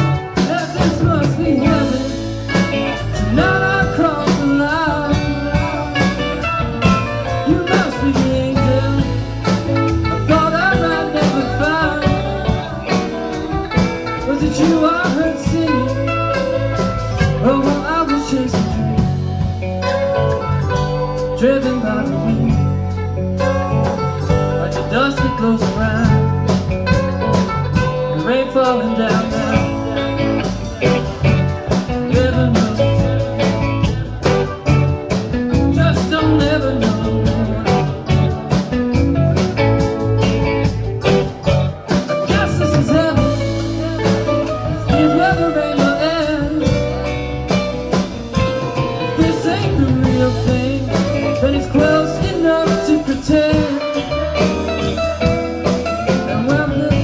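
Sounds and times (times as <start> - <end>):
bass guitar: 0.0 - 57.0
drums: 0.0 - 57.0
electric guitars: 0.0 - 57.0
electric keyboard: 0.0 - 57.0.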